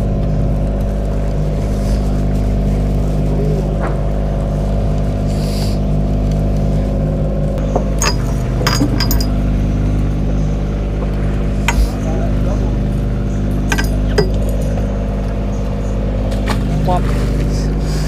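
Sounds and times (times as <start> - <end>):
boat engine running: 0.0 - 18.0
sharp metallic clinks: 8.0 - 9.4, 13.6 - 14.8.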